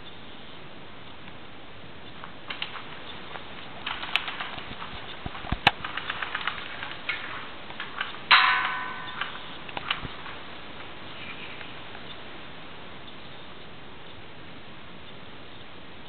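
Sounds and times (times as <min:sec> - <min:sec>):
sharp clicks: 0:02.1 - 0:10.9
loud ringing hit: 0:08.3 - 0:09.7.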